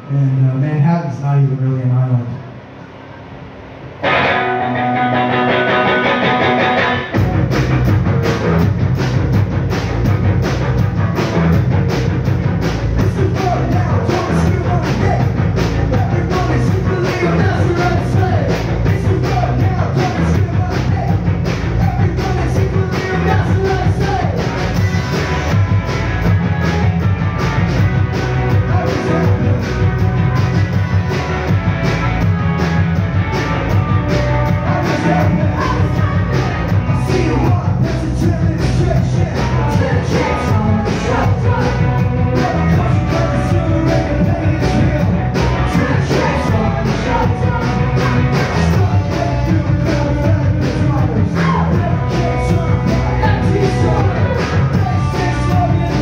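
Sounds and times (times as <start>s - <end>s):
bass: 0.0s - 56.0s
electric guitars: 2.5s - 56.0s
steady drum beat: 5.2s - 56.0s
person singing: 34.5s - 56.0s.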